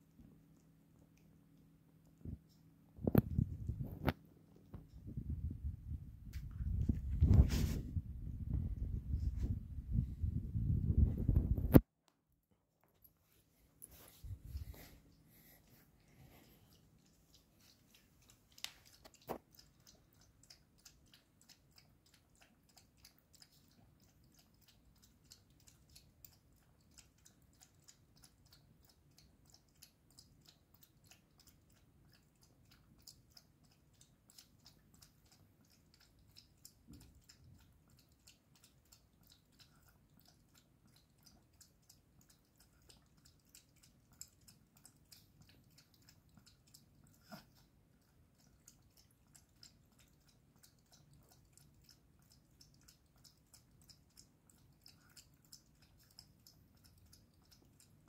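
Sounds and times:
dog chewing food from metal bowl: 16.4s - 58.0s.

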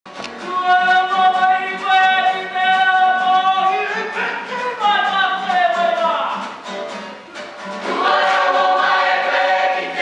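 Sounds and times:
mixed choir singing: 7.8s - 10.0s.

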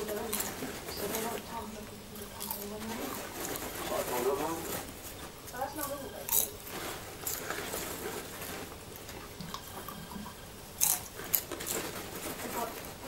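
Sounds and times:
popcorn crunching: 0.0s - 13.0s
bag rustling: 2.6s - 5.4s, 6.5s - 9.4s.

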